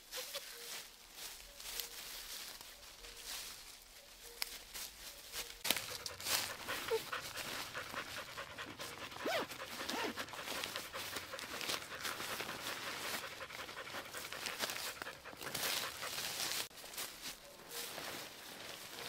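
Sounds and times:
panting breaths: 0:05.7 - 0:16.7.

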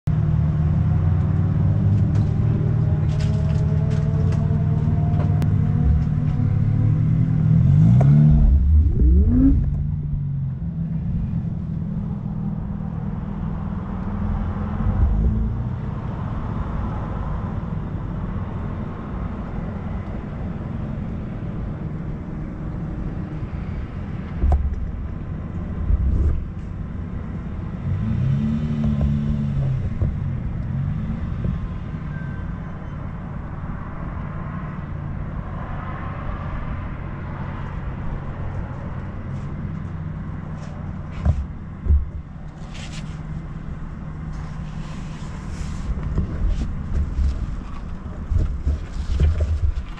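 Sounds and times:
car engine revving: 0:00.8 - 0:11.6, 0:25.4 - 0:31.7.

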